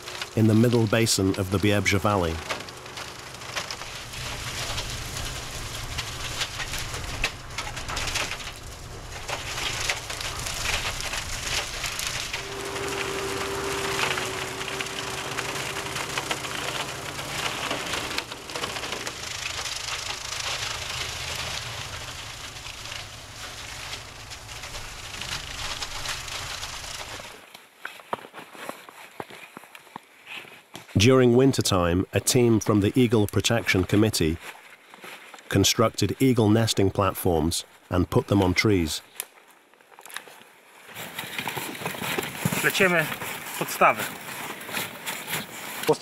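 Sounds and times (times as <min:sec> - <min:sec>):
steady whine: 0:00.0 - 0:27.4
tractor engine hum: 0:00.0 - 0:27.4
wood crackling and splintering: 0:00.0 - 0:29.9, 0:30.8 - 0:46.0.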